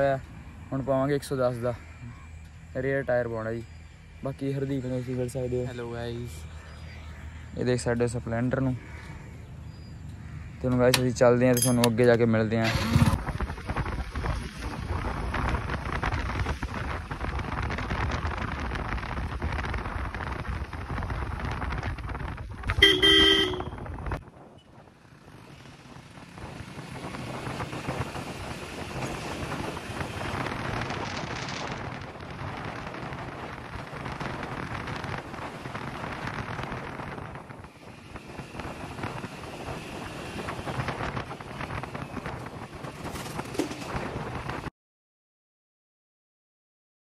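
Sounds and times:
road and wind noise: 0.0 - 44.7
vehicle horn tooting: 22.7 - 23.9.

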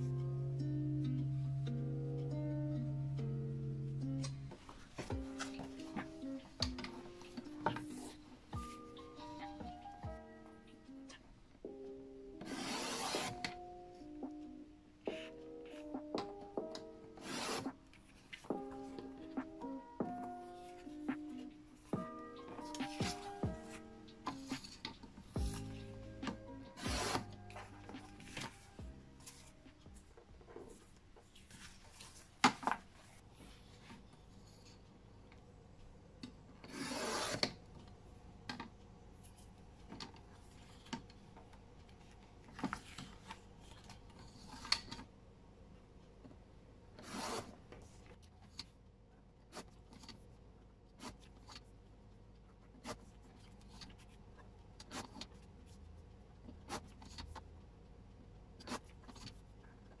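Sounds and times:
paper sheets tapping and rustling: 4.5 - 8.8, 15.1 - 33.6
paper trimmer blade cutting: 12.4 - 13.4.

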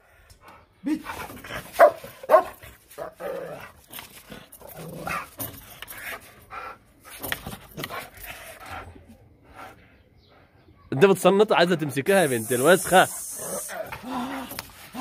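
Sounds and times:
dog barking: 1.8 - 2.6.

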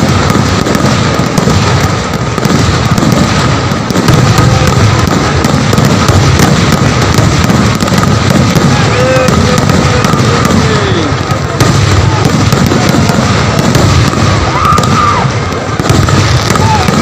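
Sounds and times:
fireworks bangs and crackling: 0.0 - 17.0.

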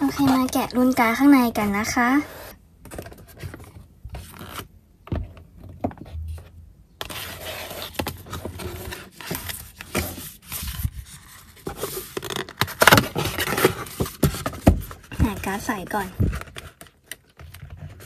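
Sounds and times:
cardboard scraping and rubbing: 0.0 - 4.7, 5.8 - 18.0.

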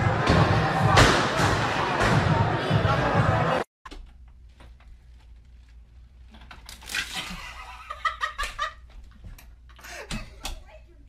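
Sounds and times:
person laughing: 7.2 - 8.8.

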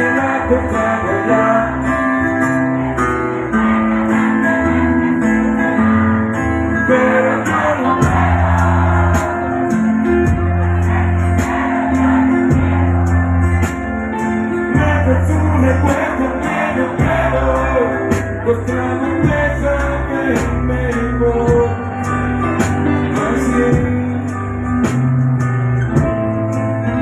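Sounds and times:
electric guitar: 0.0 - 27.0
heavy bass line: 0.0 - 27.0
person singing: 14.7 - 22.1, 23.0 - 24.4.

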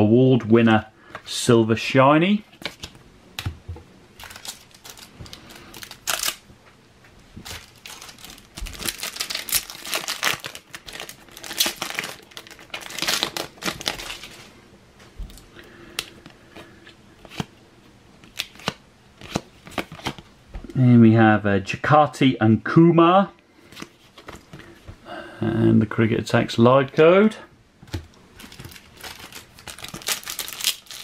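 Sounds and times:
foil wrapper tearing and crinkling: 4.2 - 6.4, 7.4 - 14.4, 28.4 - 31.0.

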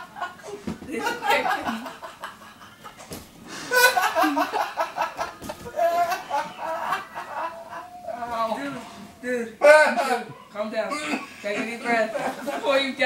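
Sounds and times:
person laughing hard: 3.6 - 8.3.

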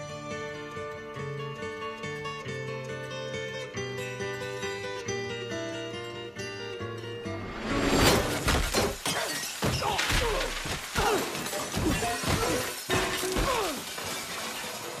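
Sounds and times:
loud crash: 7.4 - 10.9
pots and crockery clattering and shattering: 7.7 - 15.0.

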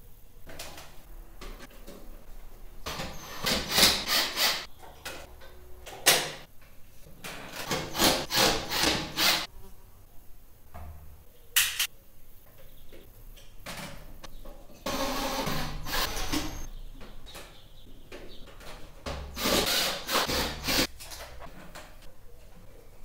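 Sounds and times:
cordless drill driving screws: 3.1 - 4.6, 7.7 - 9.4, 19.4 - 20.9.

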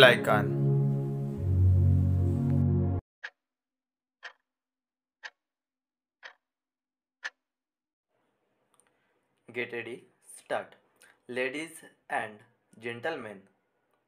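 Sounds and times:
background music: 0.0 - 3.0
stopwatch ticks: 3.2 - 3.4, 4.2 - 4.6, 5.2 - 5.6, 6.2 - 6.6, 7.2 - 7.6.

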